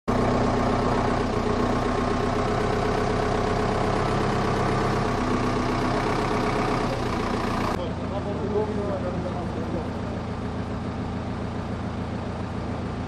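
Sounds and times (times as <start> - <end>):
vehicle engine idling: 0.1 - 13.0.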